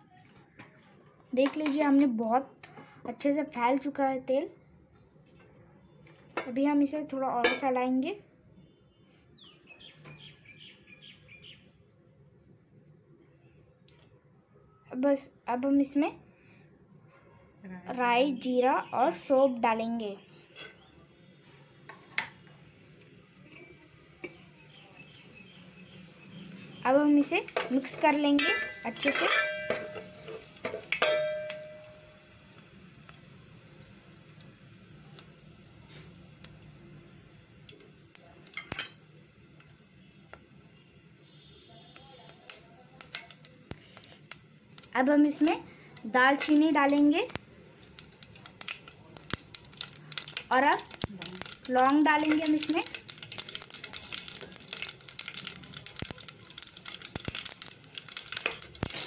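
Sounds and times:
seeds sizzling in hot oil: 0:20.5 - 0:59.0
metallic ring: 0:31.0 - 0:32.3.

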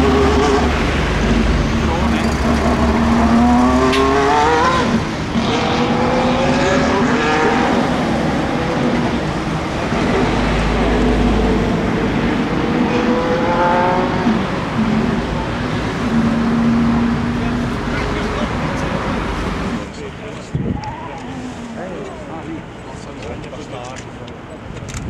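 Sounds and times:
racing car engine accelerating: 0:00.0 - 0:19.8.

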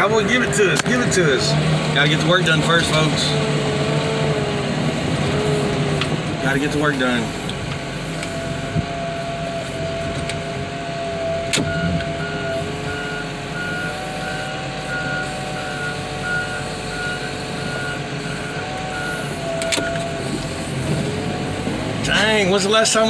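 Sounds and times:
heavy equipment mechanical whine: 0:00.0 - 0:23.0
backup alarm beeping: 0:08.3 - 0:20.2.

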